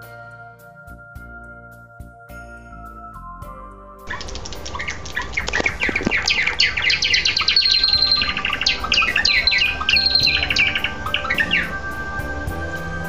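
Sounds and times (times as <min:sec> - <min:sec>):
sparrow chirping song: 0:04.1 - 0:13.0
bird long high note: 0:06.1 - 0:13.0.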